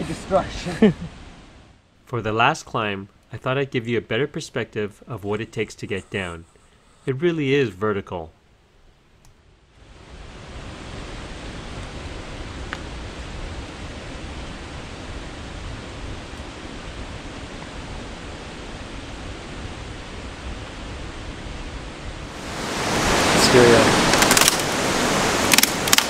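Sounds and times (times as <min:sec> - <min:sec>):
faint click: 0:09.2 - 0:09.4
steady rushing noise: 0:09.8 - 0:26.0.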